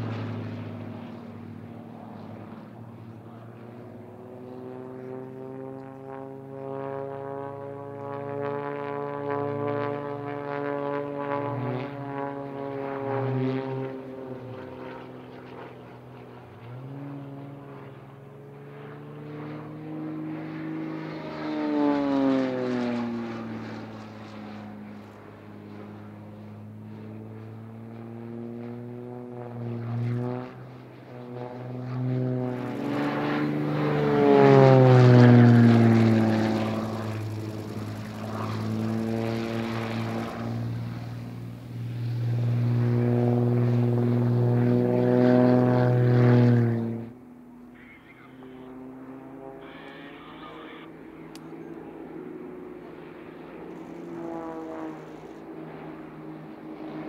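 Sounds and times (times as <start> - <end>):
model plane propeller engines droning: 0.0 - 57.0.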